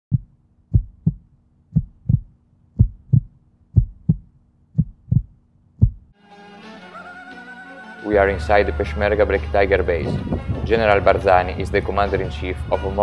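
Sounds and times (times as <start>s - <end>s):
heartbeat thumps: 0.1s - 6.1s.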